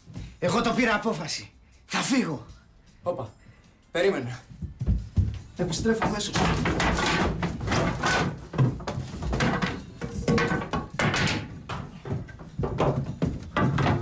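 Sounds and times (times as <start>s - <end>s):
wooden knocks and thuds: 4.5s - 14.0s.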